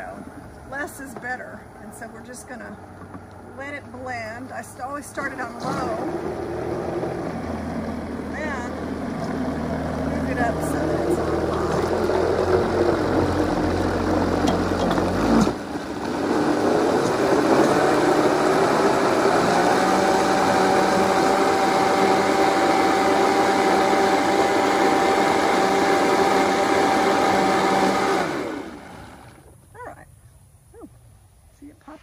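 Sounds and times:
blender motor whining: 0:05.2 - 0:29.4.

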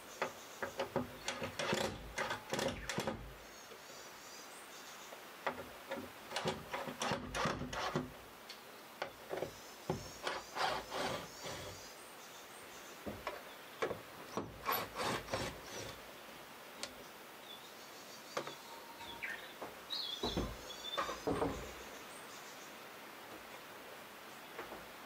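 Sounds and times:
bird chirps: 0:17.5 - 0:22.7
wooden window sash knocking: 0:20.2 - 0:21.7.

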